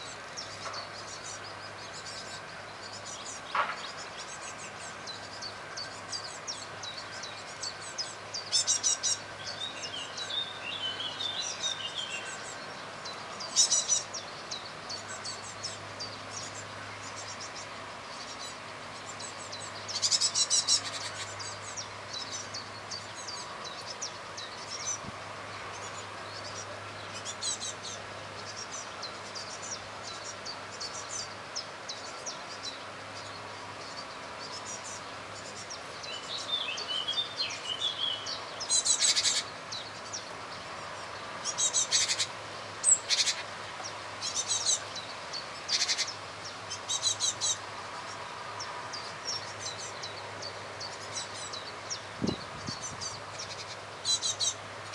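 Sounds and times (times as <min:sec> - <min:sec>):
birds chirping: 0:00.0 - 0:54.9.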